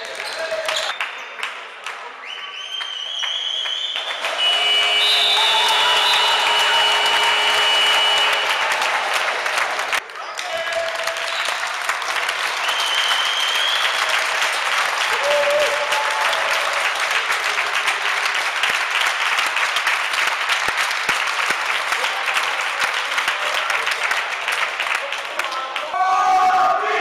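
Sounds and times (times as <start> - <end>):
applause: 0.0 - 26.8
people shouting: 4.3 - 9.4.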